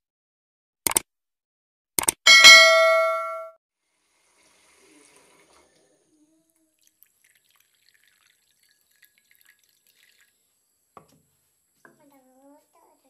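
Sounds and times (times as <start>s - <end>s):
water dripping into glass bowl: 6.8s - 10.4s.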